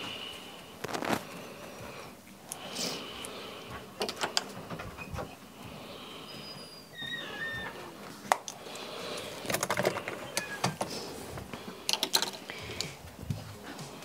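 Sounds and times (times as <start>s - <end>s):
makeup tools clicking and rattling: 8.3s - 11.0s, 11.8s - 13.0s.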